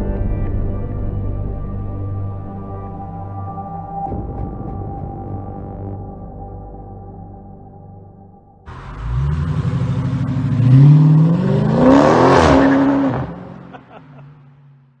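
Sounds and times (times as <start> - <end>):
car engine accelerating hard: 8.7 - 15.0.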